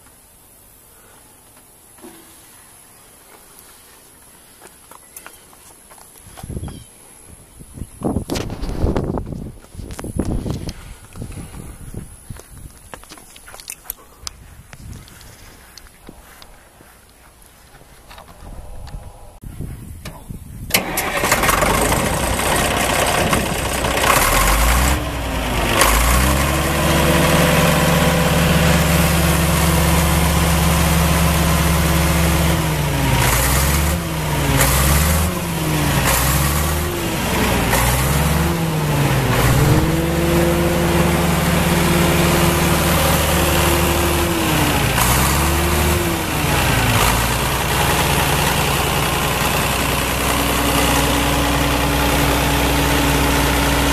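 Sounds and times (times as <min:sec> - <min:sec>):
diesel engine cranking: 0:20.0 - 0:53.9
diesel engine running: 0:20.1 - 0:53.9.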